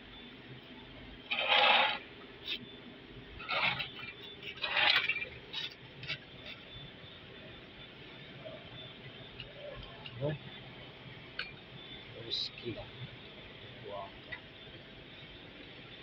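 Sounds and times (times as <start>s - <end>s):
faint steady hum: 0.0s - 16.0s
loud scraping: 1.3s - 2.1s, 3.4s - 5.3s.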